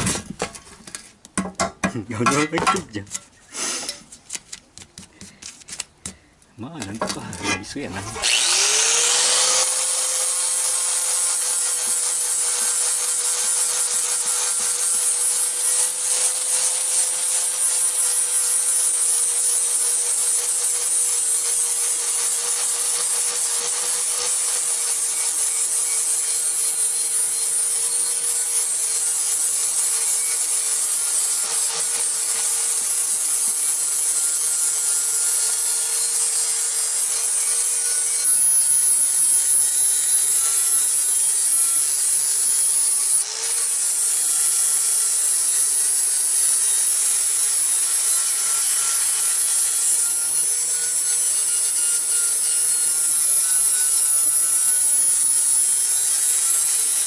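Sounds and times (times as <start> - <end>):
angle grinder grinding metal: 6.6 - 57.0.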